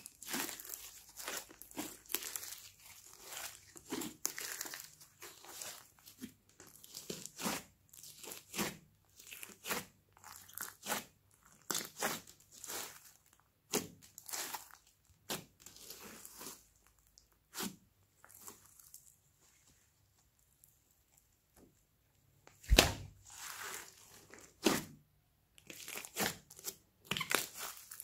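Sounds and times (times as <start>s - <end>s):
slime crackling and squelching: 0.0s - 21.2s, 22.6s - 28.0s.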